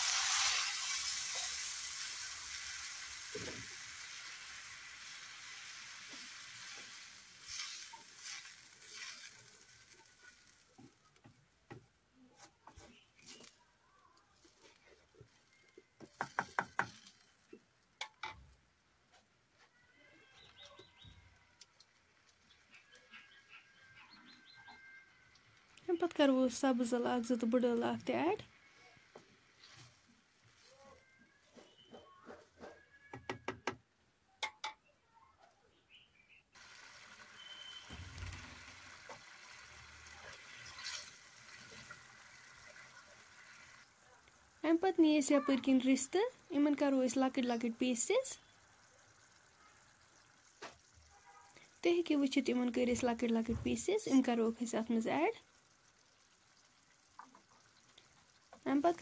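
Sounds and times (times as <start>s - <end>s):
sauce simmering and bubbling: 0.0s - 31.9s, 36.5s - 59.0s
wooden spatula stirring: 5.2s - 13.6s, 37.4s - 44.6s
faint high chirping: 19.6s - 21.8s, 22.4s - 26.2s, 30.6s - 33.3s, 37.2s - 38.6s
thin whistling tones: 37.2s - 38.5s.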